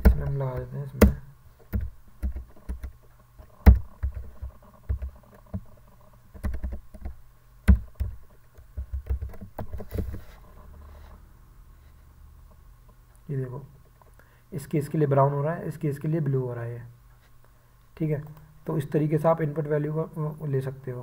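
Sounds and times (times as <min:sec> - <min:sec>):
keyboard typing clicks: 0:00.0 - 0:03.0, 0:03.6 - 0:05.6, 0:06.3 - 0:10.1
faint low hum: 0:00.0 - 0:21.0.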